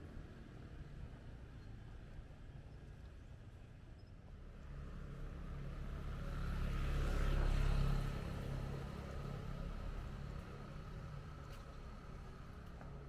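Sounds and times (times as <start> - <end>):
vehicle driving past: 4.8 - 10.3.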